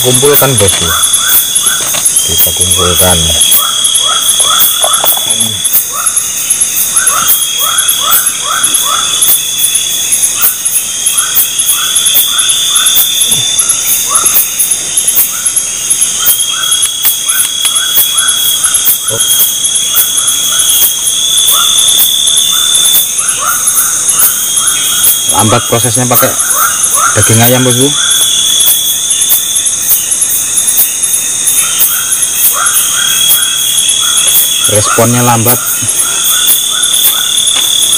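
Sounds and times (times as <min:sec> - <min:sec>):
insects pulsing: 0:00.0 - 0:37.9
steady insect trill: 0:00.0 - 0:37.9.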